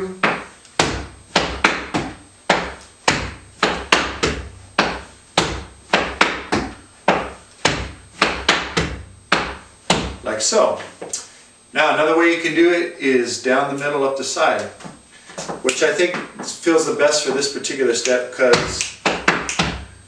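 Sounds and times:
shoes stamping on wooden floor: 0.1 - 11.1, 14.7 - 16.6, 18.4 - 20.0.

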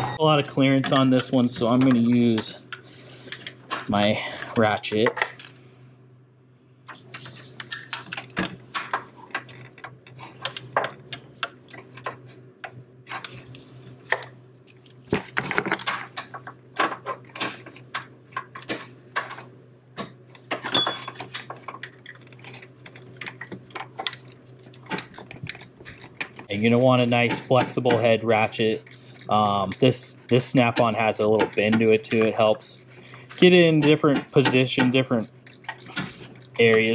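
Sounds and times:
faint low hum: 0.0 - 36.9
metal clinks: 20.7 - 21.2.

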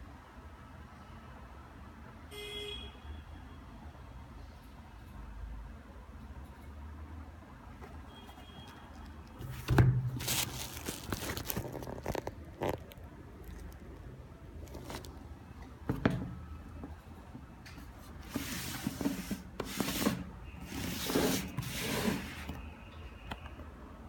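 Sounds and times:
rubbing and rustling of paper: 8.9 - 13.8, 17.8 - 22.6
short scrapes: 18.1 - 22.6.

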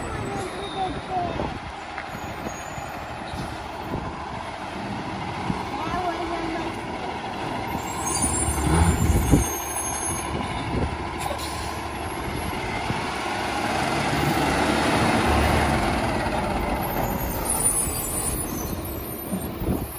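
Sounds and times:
garbage truck diesel engine: 0.0 - 19.9
high-pitched squeals: 7.7 - 10.6, 16.8 - 19.9.

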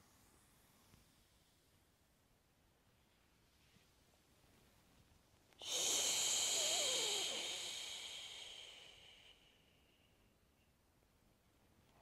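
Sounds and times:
woman's hissing out-breath: 5.6 - 9.6.

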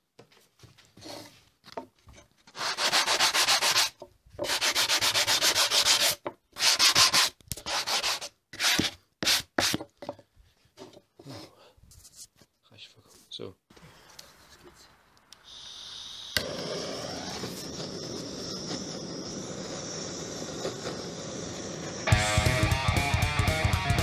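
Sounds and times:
sanding wood: 2.6 - 9.8.

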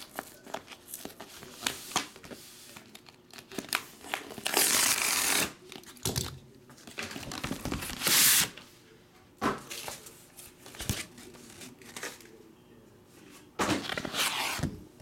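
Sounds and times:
cardboard tear strip ripping: 3.5 - 5.6.

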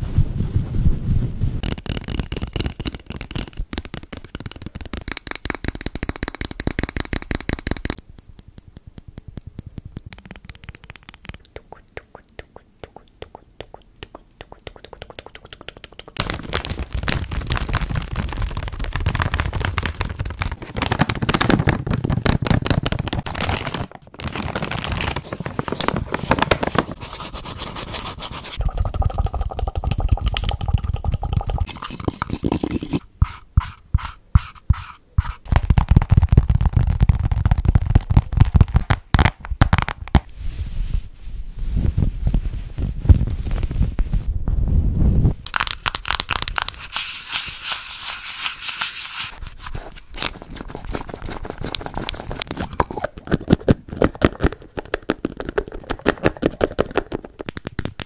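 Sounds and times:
plastic pouch crinkling: 1.6 - 5.4, 16.1 - 28.6, 45.4 - 57.1
tapping and scratching objects: 1.6 - 8.0
quick fingernail tapping: 1.6 - 16.2.

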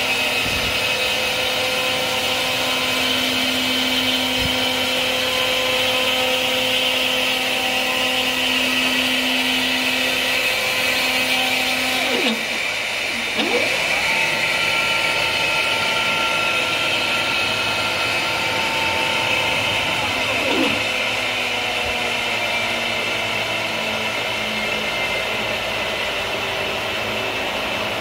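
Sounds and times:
router spindle high whine: 0.0 - 28.0.

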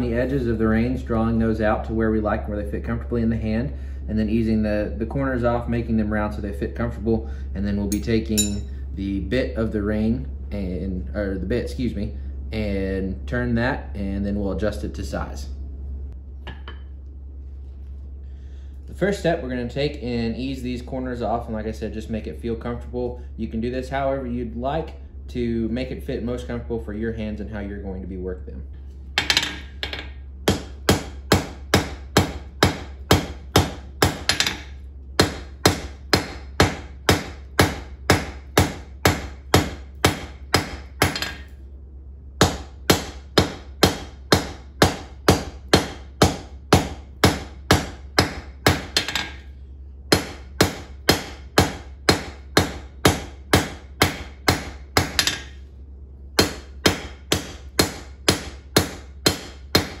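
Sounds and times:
hammer ringing on anvil: 7.9 - 8.8.

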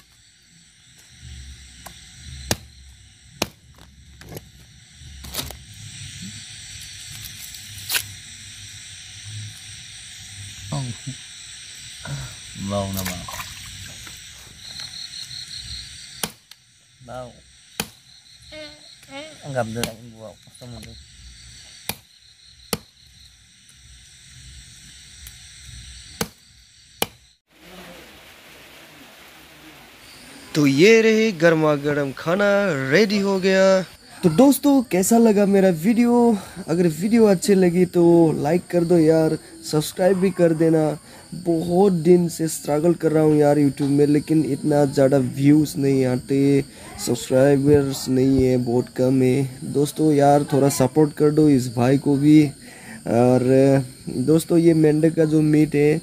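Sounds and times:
steady background hiss: 0.0 - 22.0, 27.0 - 56.0
knife chopping on wood: 16.2 - 16.4, 17.8 - 18.0, 21.9 - 22.1, 26.2 - 26.4.

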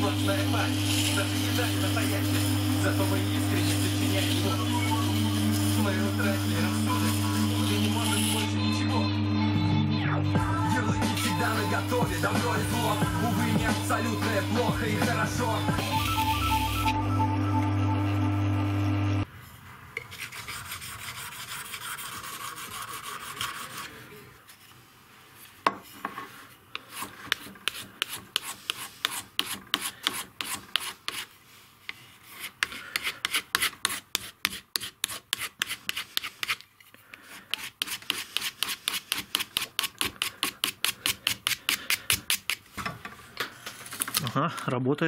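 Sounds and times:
song playing: 0.1 - 19.2
knife rasping on wooden strop: 20.1 - 24.0, 26.0 - 31.3, 31.9 - 42.6.

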